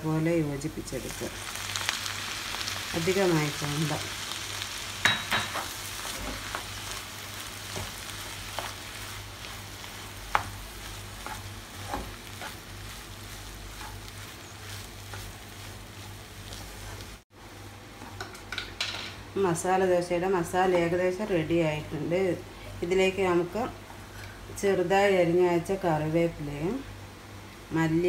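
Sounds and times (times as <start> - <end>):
food sizzling in a frying pan: 0.0 - 17.3
spatula stirring and mashing: 5.0 - 17.2.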